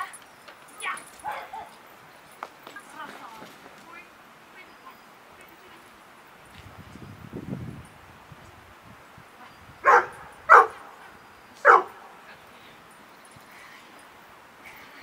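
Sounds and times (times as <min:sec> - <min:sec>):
dog barking: 0:01.2 - 0:01.8, 0:09.8 - 0:11.0, 0:11.6 - 0:12.1.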